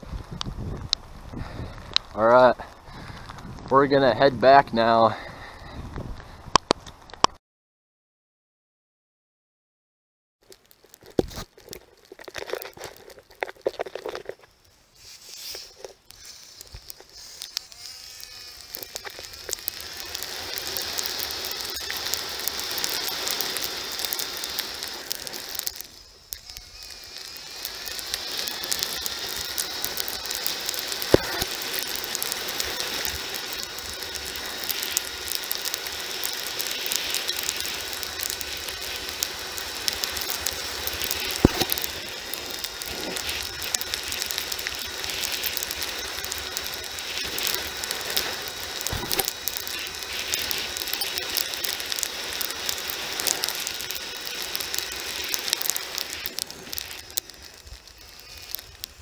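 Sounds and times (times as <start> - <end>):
dense constant rattle: 10.9 - 14.5.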